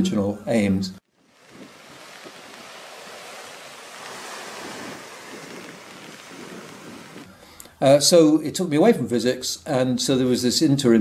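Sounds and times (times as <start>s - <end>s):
small waves washing on beach: 1.0s - 7.3s.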